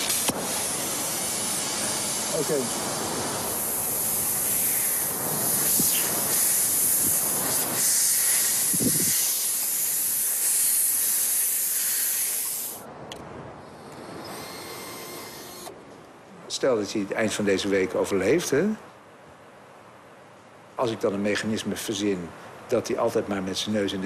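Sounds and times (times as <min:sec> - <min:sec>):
wind hissing: 0:00.0 - 0:15.8.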